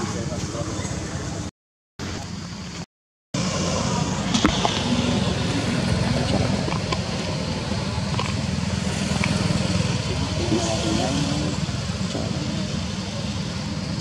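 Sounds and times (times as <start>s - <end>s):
steady low rumble: 3.4s - 14.0s.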